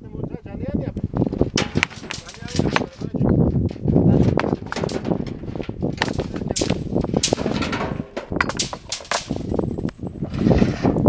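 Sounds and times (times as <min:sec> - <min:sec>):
stones clattering against stones: 0:01.5 - 0:09.8.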